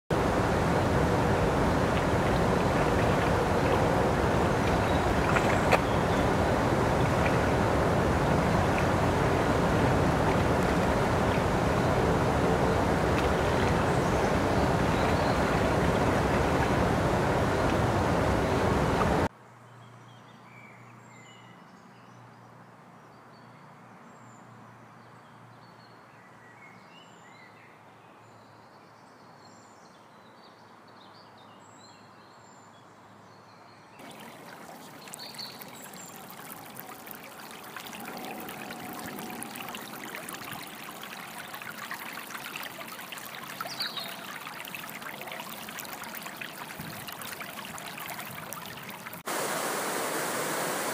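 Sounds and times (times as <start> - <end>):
stream water over stones: 0.1 - 19.3, 34.0 - 50.9.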